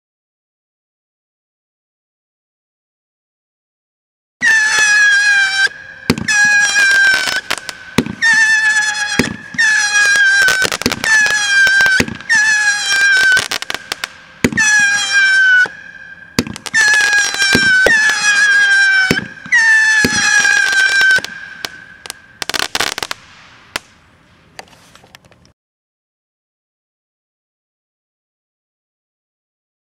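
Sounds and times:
whistling firework missiles: 0:04.4 - 0:25.0
firework pops and bangs: 0:06.1 - 0:15.8, 0:16.4 - 0:25.4.

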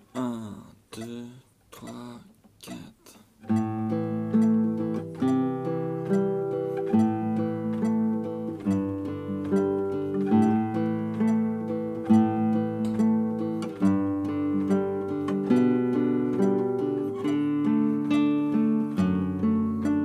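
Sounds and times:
classical guitar fingerpicking: 0:00.0 - 0:20.0.

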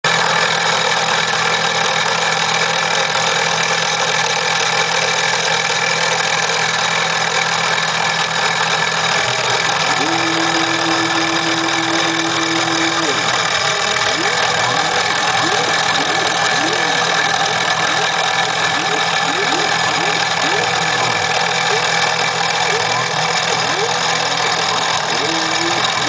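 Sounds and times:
mill spindle engraving wood: 0:07.7 - 0:26.0
steady whine: 0:08.8 - 0:26.0.

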